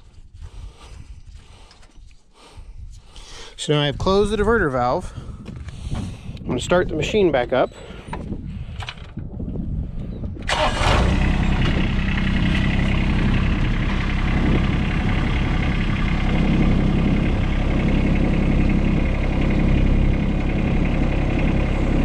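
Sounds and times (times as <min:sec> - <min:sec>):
diesel engine starting and running: 0:10.0 - 0:22.0.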